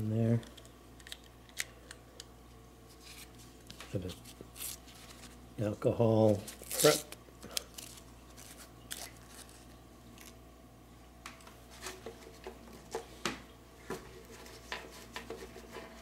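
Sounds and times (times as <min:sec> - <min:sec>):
foil packet rustling: 0:02.9 - 0:05.4, 0:06.2 - 0:10.4.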